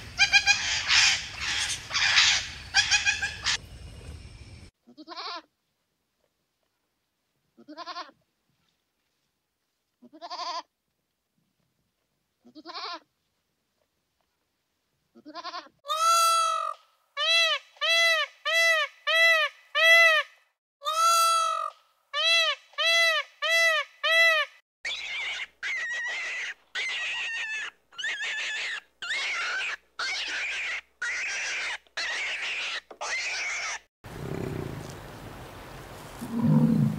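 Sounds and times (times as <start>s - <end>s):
animal cries: 0.2s - 3.6s, 24.9s - 34.7s.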